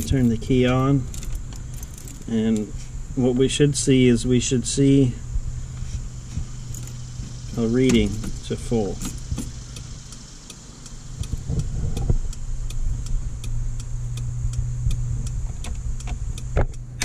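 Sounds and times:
steady low hum: 0.0s - 17.0s
regular light ticking: 6.9s - 17.0s.

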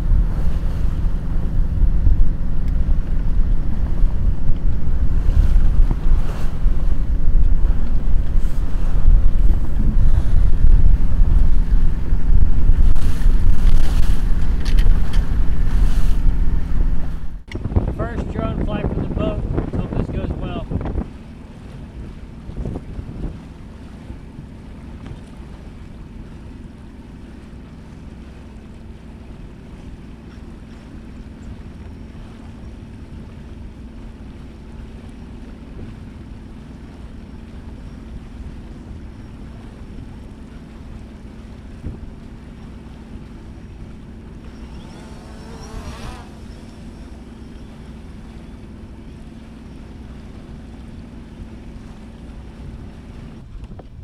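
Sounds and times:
steady low hum: 0.0s - 54.0s
water rushing past hull: 0.0s - 54.0s
wind on microphone: 0.0s - 54.0s
drone motors whining: 44.3s - 48.7s.

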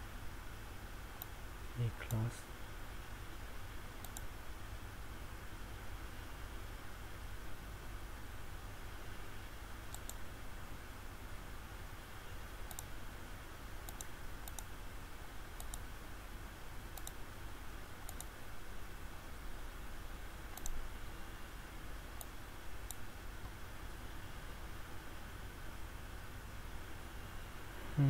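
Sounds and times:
low hum and hiss: 0.0s - 28.0s
computer mouse clicking: 4.0s - 4.3s, 9.9s - 10.2s, 12.6s - 12.9s, 13.8s - 14.7s, 15.6s - 15.9s, 16.9s - 17.2s, 18.0s - 18.3s, 20.5s - 20.8s, 22.2s - 23.6s.

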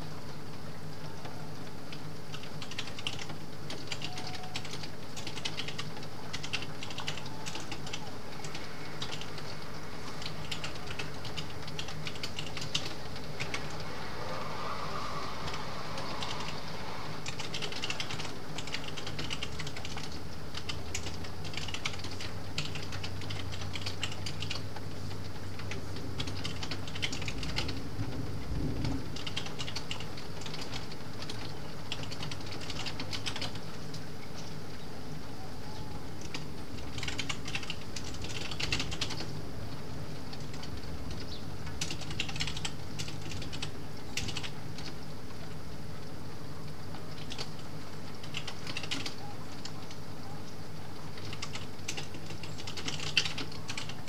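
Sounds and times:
rain on a skylight: 0.0s - 54.0s
keyboard typing: 2.3s - 14.0s, 17.2s - 24.6s, 25.6s - 27.8s, 29.2s - 33.6s, 36.2s - 39.3s, 40.3s - 44.9s, 47.2s - 47.6s, 48.2s - 50.0s, 51.2s - 54.0s
thunder rumble: 7.4s - 19.7s, 27.2s - 30.4s.

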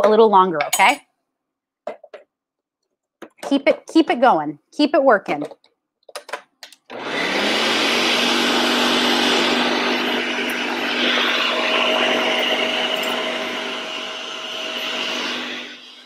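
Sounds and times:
blender motor running: 6.9s - 16.0s.

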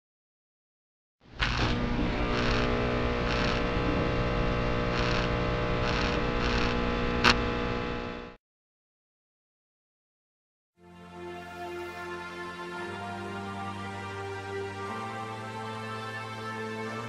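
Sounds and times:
sharp electrical zap: 1.4s - 3.8s, 4.8s - 7.4s
short electrical crackle: 1.4s - 8.2s
neon sign electrical hum: 1.4s - 8.4s.

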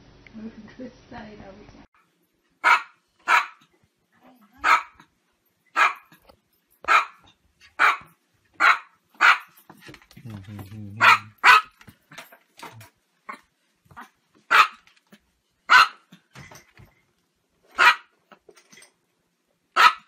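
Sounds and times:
small dog barking: 2.6s - 3.7s, 4.6s - 5.1s, 5.7s - 6.2s, 6.8s - 9.6s, 11.0s - 11.8s, 14.0s - 14.9s, 15.7s - 16.1s, 17.8s - 18.1s, 19.8s - 20.0s.

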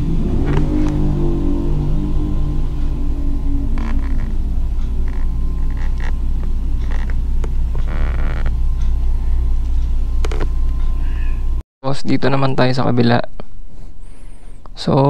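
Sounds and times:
steady low rumble: 0.0s - 14.9s.

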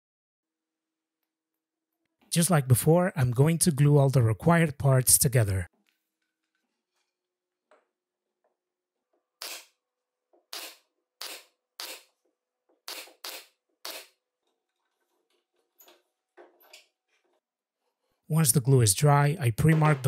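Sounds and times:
pneumatic nail gun firing: 9.4s - 9.7s, 10.5s - 12.1s, 12.9s - 14.2s.

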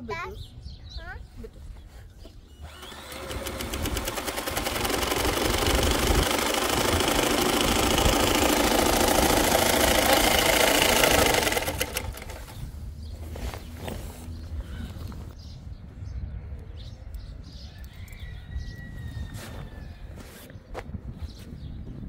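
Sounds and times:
sewing machine stitching: 2.6s - 12.5s.

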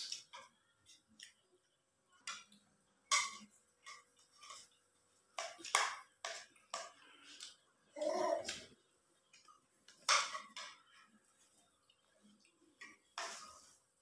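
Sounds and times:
spoons clinking on ceramic plates: 2.2s - 7.0s, 9.3s - 11.2s.

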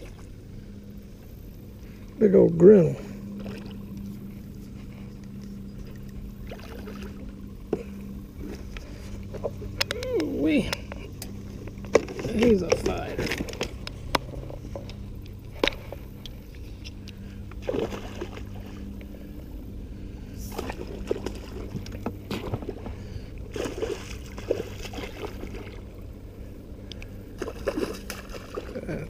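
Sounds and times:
steady low hum: 0.0s - 29.0s
fish splashing in water: 17.6s - 18.8s, 23.5s - 26.0s, 27.3s - 29.0s.

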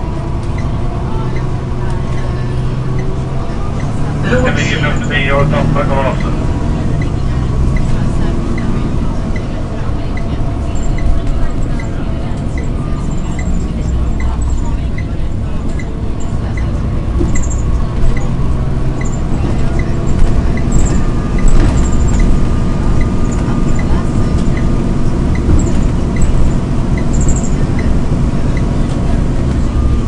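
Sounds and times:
bus engine and road rumble: 0.0s - 30.0s
faint high squeaks: 10.2s - 18.3s.

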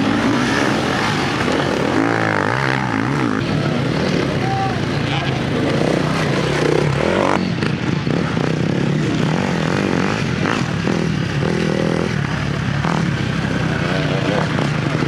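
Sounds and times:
dirt bike engines revving: 0.0s - 15.0s.

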